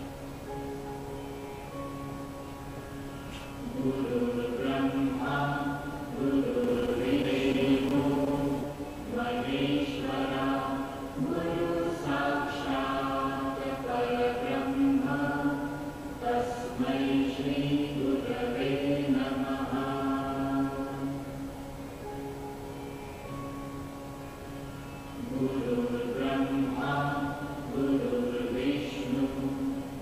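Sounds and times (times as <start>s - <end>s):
voices chanting: 3.6s - 21.3s, 25.2s - 30.0s.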